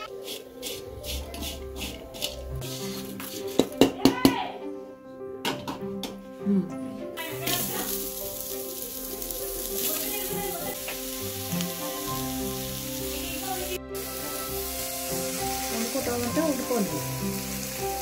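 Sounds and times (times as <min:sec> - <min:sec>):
background music of held notes: 0:00.0 - 0:18.0
onions sizzling in oil: 0:07.2 - 0:18.0.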